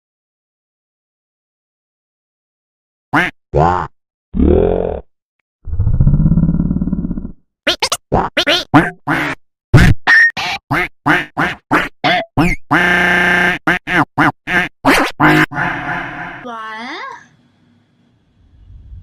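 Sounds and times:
low grunt-like voice: 4.4 - 5.1.

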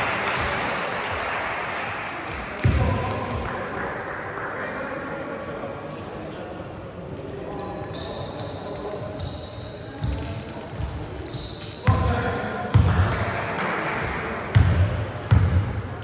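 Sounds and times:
shoes squeaking on floor: 7.5 - 12.0.

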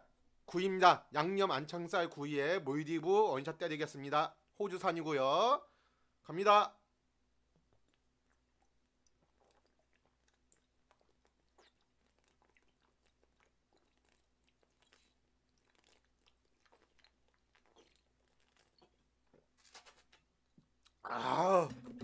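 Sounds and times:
gulping and swallowing: 7.8 - 19.2.

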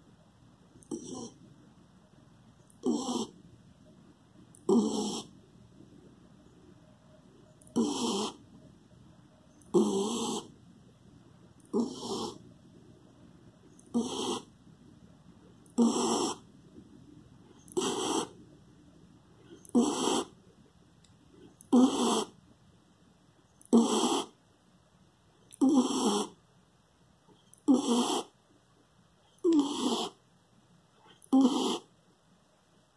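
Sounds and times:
dog snoring: 0.8 - 1.5, 2.7 - 3.4, 4.5 - 5.4, 7.6 - 8.5, 9.6 - 10.6, 11.6 - 12.5, 13.8 - 14.5, 15.6 - 16.5, 17.4 - 18.5, 19.4 - 20.4, 21.4 - 22.4, 23.6 - 24.4, 25.4 - 26.4, 27.3 - 28.4, 29.2 - 30.2, 31.0 - 31.9.

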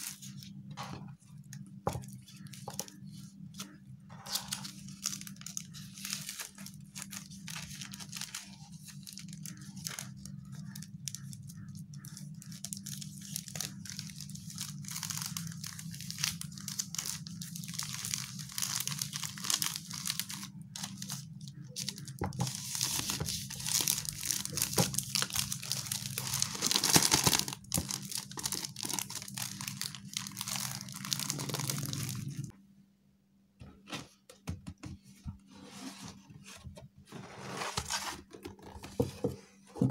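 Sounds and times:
plastic bag crinkling: 1.4 - 32.5.

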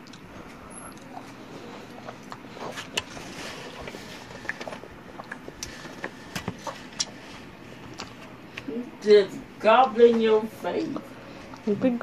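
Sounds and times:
person chewing food: 0.0 - 8.7, 11.0 - 11.7.

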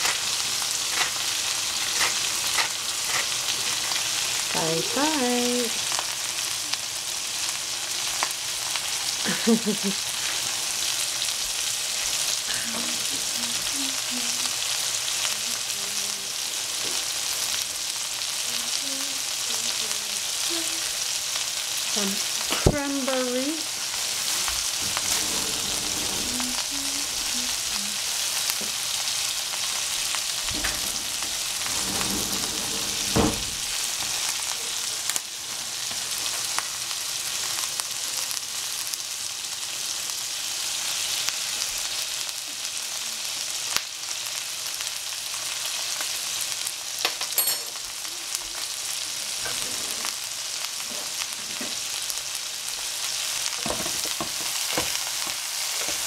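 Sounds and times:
food sizzling in a frying pan: 0.0 - 56.0.

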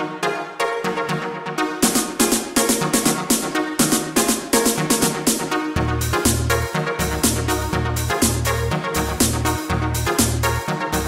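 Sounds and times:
electronic music with fast beat: 0.0 - 11.0.

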